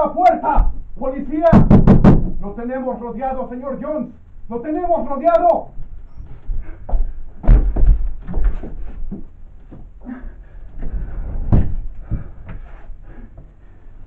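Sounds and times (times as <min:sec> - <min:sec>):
pounding on a door: 0:01.5 - 0:02.4, 0:07.4 - 0:08.4.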